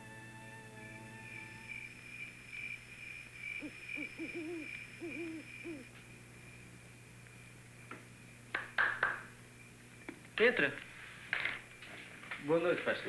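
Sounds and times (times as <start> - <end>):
steady high-pitched tone: 0.0 - 6.0
low hum: 0.0 - 8.5
owl hooting: 0.9 - 6.0.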